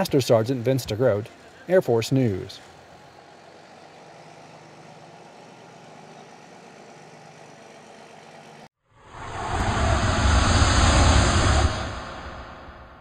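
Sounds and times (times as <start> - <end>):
tow vehicle engine running: 0.0 - 8.7
loud rushing sound: 9.0 - 13.0.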